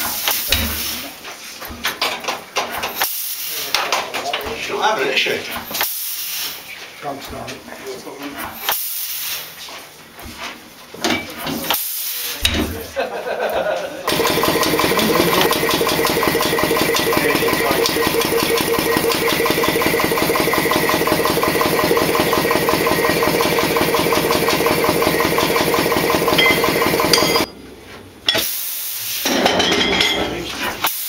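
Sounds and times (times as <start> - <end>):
loud air burst and hiss: 3.0 - 3.7, 5.8 - 6.7, 8.6 - 9.6, 11.7 - 12.4, 28.4 - 29.4, 30.8 - 31.0
air compressor chugging: 14.1 - 27.5.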